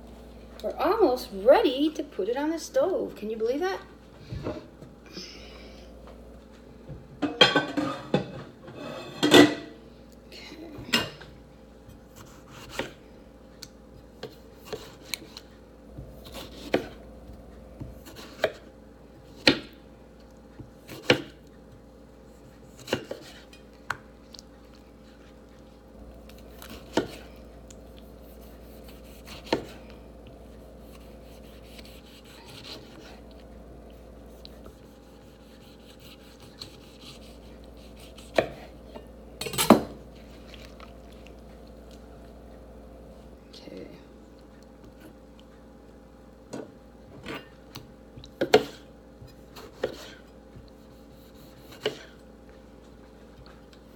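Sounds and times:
knife cutting tomato: 0:12.1 - 0:13.0, 0:14.2 - 0:15.5, 0:16.1 - 0:17.0, 0:17.8 - 0:19.8, 0:20.6 - 0:21.6, 0:22.2 - 0:24.0, 0:26.2 - 0:33.4, 0:34.2 - 0:38.8, 0:47.2 - 0:52.2.

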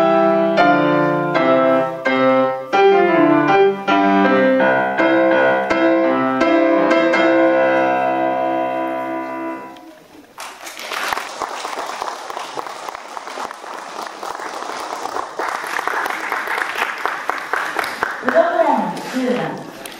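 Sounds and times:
grand piano chords: 0:00.0 - 0:10.1
audience applauding: 0:10.2 - 0:18.8.

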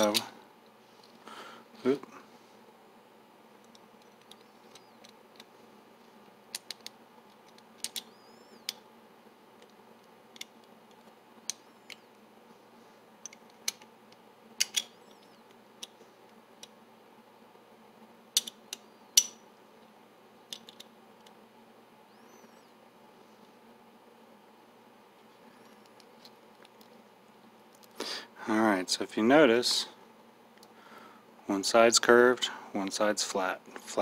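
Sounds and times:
small steel parts clicking: 0:06.5 - 0:08.8, 0:14.6 - 0:14.9, 0:18.4 - 0:19.3.

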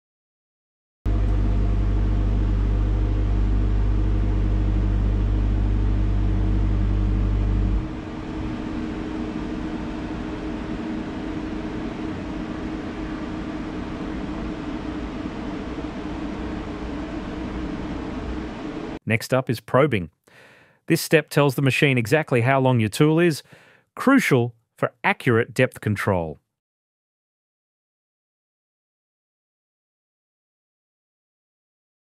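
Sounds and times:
machine motor hum: 0:01.1 - 0:19.0
quiet motor whir: 0:01.1 - 0:19.0.

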